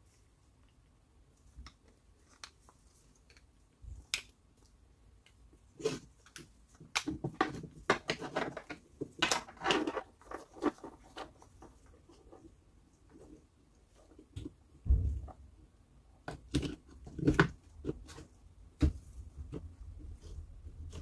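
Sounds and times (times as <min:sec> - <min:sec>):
plastic drill parts being handled: 0:05.9 - 0:11.9.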